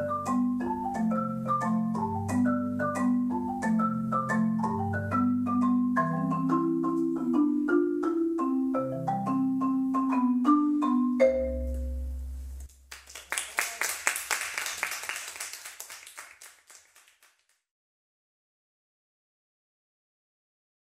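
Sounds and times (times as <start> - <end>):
marimba duet: 0.0 - 12.7.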